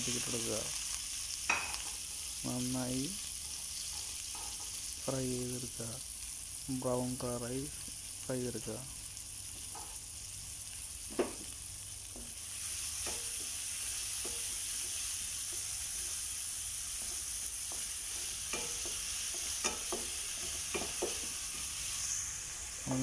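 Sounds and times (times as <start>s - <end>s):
vegetables sizzling in hot oil: 0.0s - 23.0s
spatula knocking against pan: 18.5s - 21.3s.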